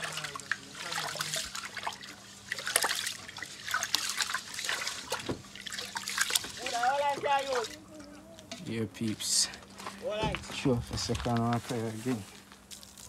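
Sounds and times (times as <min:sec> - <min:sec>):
hands swishing rice in water: 0:00.0 - 0:06.9.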